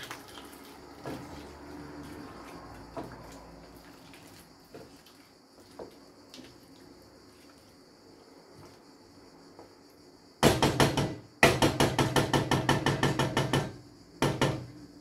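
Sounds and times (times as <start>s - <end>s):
wooden spoon knocking metal pot: 10.4s - 14.8s.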